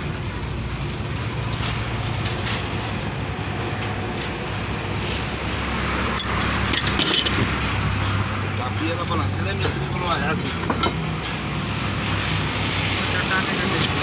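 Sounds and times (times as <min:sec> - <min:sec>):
engine running hum: 0:00.0 - 0:14.0
metal clatter: 0:06.0 - 0:07.6.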